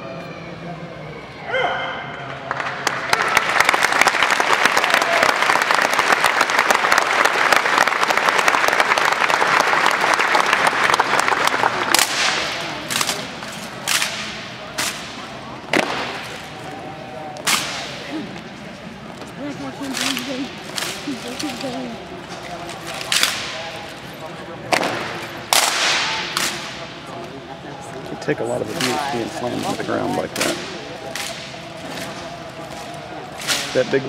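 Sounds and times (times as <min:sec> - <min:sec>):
audience applauding: 0:02.2 - 0:12.5.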